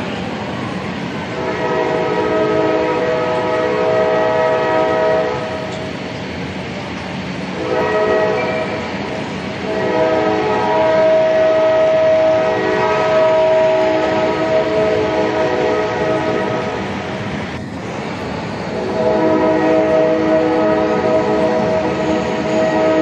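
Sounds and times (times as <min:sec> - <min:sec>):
rumble of running model trains: 0:00.0 - 0:23.0
model locomotive horn chord: 0:01.3 - 0:05.8, 0:07.6 - 0:08.8, 0:09.6 - 0:16.8, 0:18.7 - 0:23.0.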